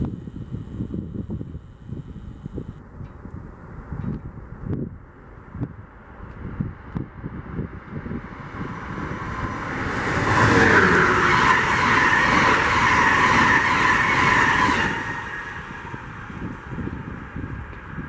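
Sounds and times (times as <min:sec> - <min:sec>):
train passing at speed: 0:06.0 - 0:18.0.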